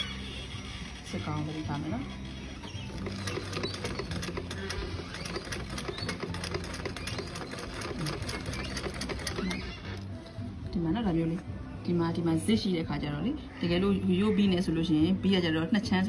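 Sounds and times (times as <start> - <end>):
sewing machine stitching: 1.1 - 10.1.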